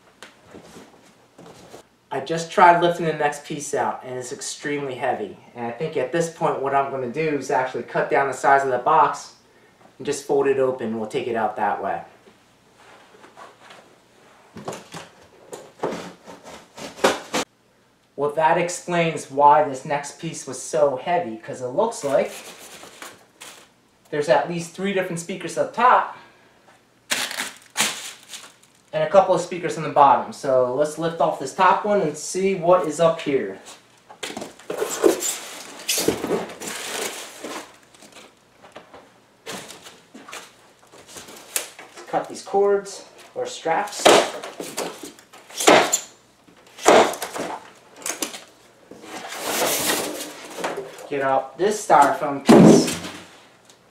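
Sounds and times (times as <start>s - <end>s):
styrofoam and cardboard rustling: 14.5s - 17.5s, 22.0s - 23.7s, 27.1s - 29.0s, 33.6s - 38.4s, 39.4s - 42.3s, 46.7s - 51.1s.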